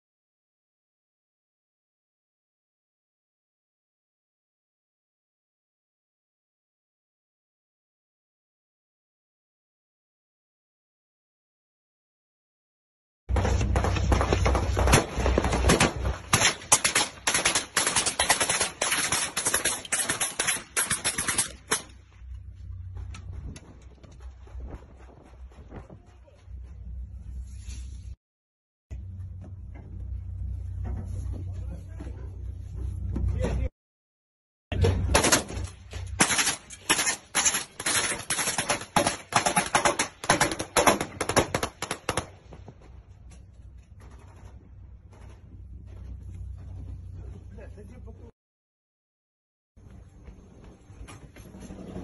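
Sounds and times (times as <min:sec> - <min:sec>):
machine gun firing bursts: 0:13.4 - 0:21.9, 0:36.2 - 0:42.3.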